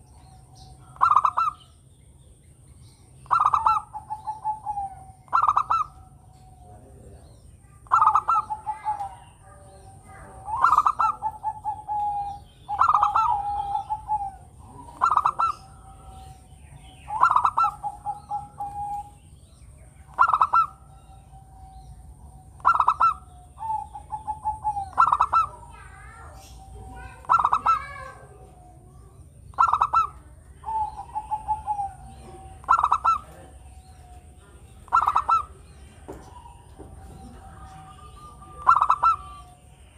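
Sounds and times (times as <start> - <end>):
dove cooing: 0.0 - 1.9, 3.0 - 39.9.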